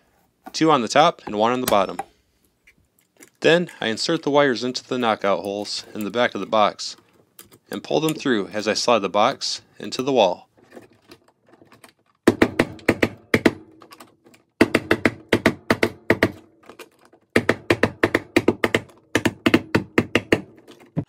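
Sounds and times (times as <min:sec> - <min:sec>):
hammer tapping plastic box: 0:12.2 - 0:14.0, 0:14.6 - 0:16.5, 0:17.3 - 0:21.0.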